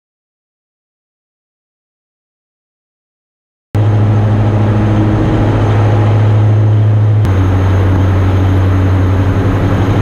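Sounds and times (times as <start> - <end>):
aircraft engine drone in cockpit: 3.8 - 10.0.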